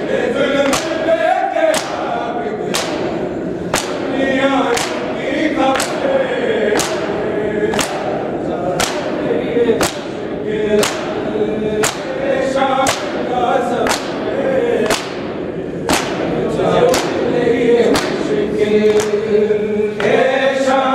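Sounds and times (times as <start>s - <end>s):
group of voices chanting: 0.0s - 20.9s
hands slapping bare chests: 0.6s - 1.0s, 1.7s - 9.2s, 9.8s - 10.2s, 10.8s - 12.2s, 12.8s - 13.2s, 13.8s - 15.3s, 15.9s - 17.3s, 17.9s - 18.3s, 18.9s - 19.2s.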